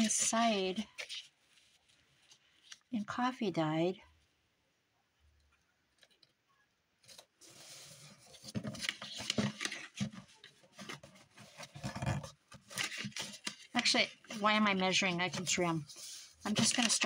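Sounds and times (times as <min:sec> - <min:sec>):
paper rustling and sliding: 0:07.0 - 0:17.0.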